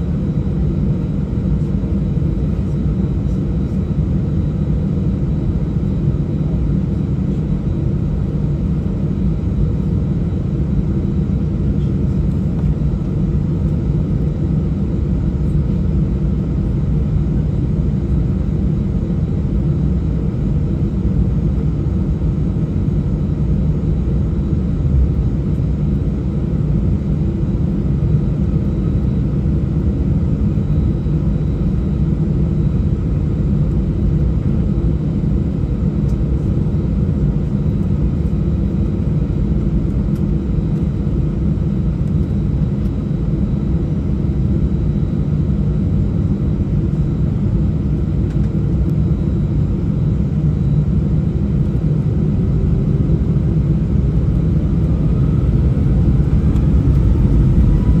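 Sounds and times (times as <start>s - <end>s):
jet engines roaring: 53.6s - 58.0s.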